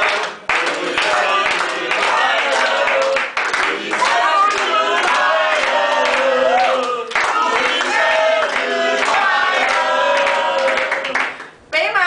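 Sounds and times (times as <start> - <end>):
group singing birthday song: 0.0 - 11.6
hand clapping: 0.0 - 11.6.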